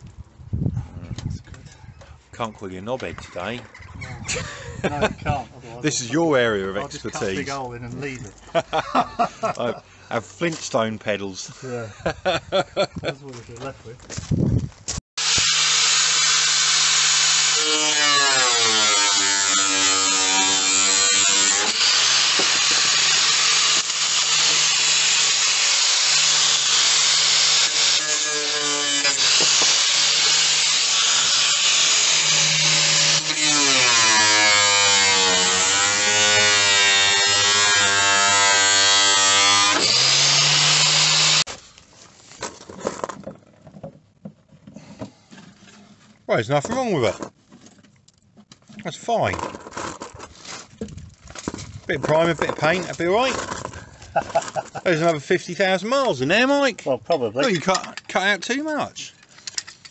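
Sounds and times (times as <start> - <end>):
angle grinder cutting metal: 15.2 - 41.5.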